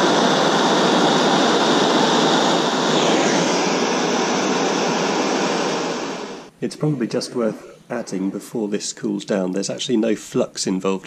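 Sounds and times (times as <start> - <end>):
blowtorch hissing: 0.0 - 6.5.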